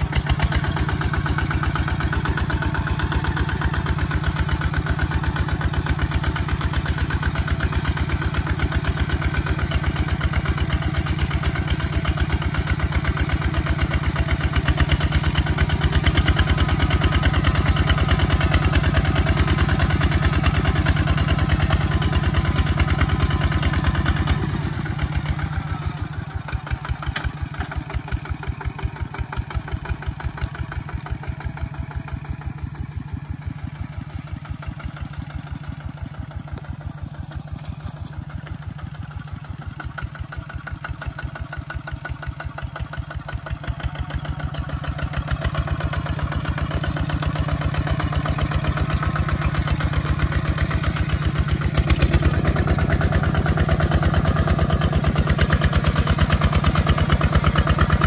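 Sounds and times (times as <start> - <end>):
diesel tractor engine thumping: 0.0 - 58.0.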